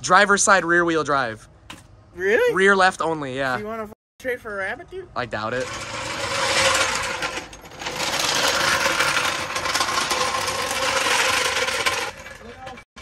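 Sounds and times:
machine clattering: 5.6s - 12.8s
machine hum: 5.6s - 12.8s.

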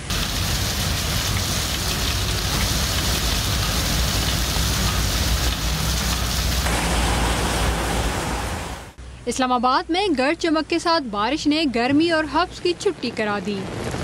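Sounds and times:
heavy rain pouring: 0.0s - 9.0s, 13.6s - 14.0s.

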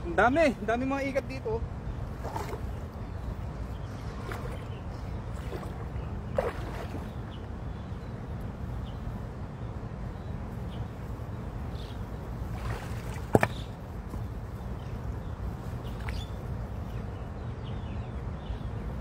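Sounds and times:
shallow running water: 1.9s - 7.7s, 12.3s - 13.8s
hands splashing in stream: 2.1s - 2.8s, 3.9s - 7.3s, 12.5s - 13.8s.

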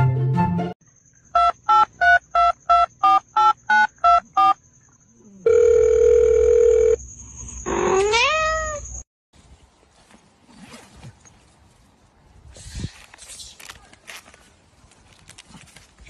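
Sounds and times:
steady telephone tone: 5.4s - 7.0s.

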